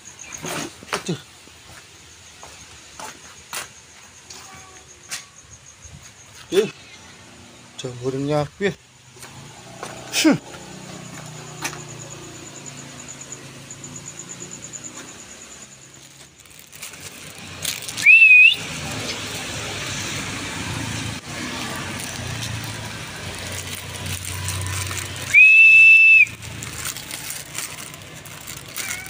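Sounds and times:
loud whistles: 0:17.8 - 0:20.2, 0:24.0 - 0:27.8.

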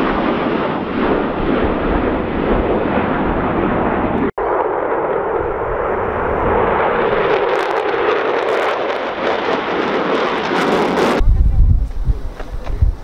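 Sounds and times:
jet engines roaring: 0:00.0 - 0:13.0.

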